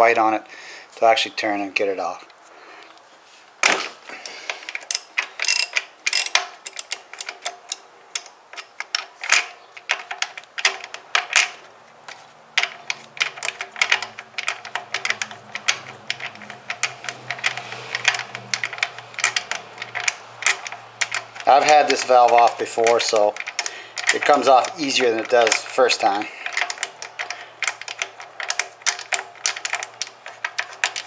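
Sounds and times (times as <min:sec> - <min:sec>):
ratchet wrench clicking: 0:04.8 - 0:10.1, 0:12.6 - 0:25.8.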